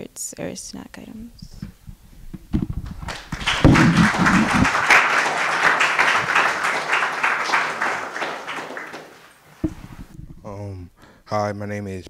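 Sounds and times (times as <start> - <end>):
audience applauding: 2.8 - 9.4.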